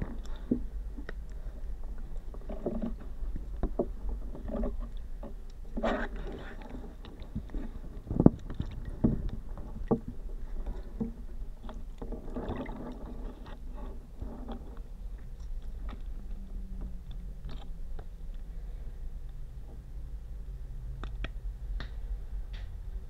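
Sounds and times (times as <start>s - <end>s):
water swishing: 0.0s - 19.9s
steady low hum: 0.0s - 23.0s.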